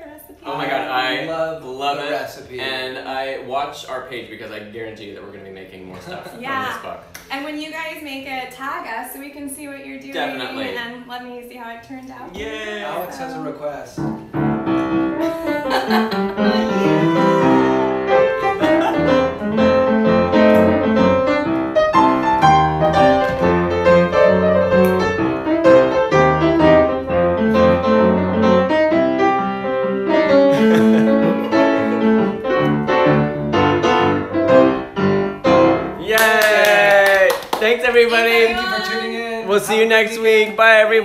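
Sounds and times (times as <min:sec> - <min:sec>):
upright piano playing: 0:13.0 - 0:41.0.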